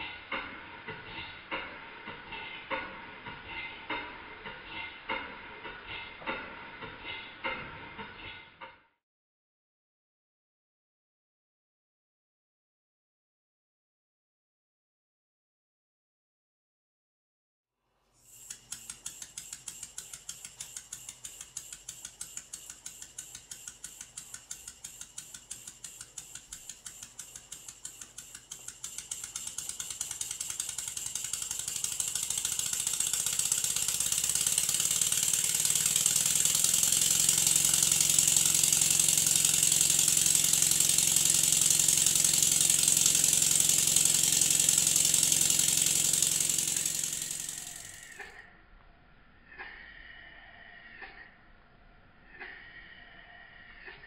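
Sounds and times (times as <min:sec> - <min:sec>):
steam engine exhaust beats: 0:18.2 - 0:48.4.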